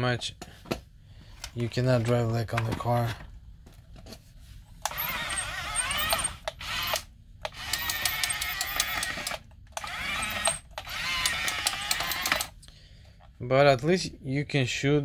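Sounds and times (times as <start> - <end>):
toy tank motors whining: 4.8 - 12.6.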